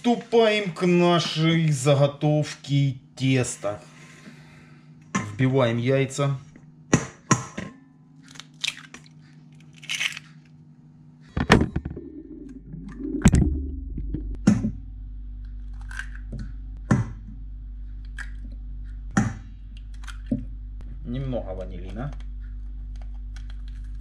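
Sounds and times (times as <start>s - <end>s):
low steady hum: 0.0s - 24.0s
eggs cracking on steel bowl: 8.3s - 10.2s, 15.6s - 16.4s.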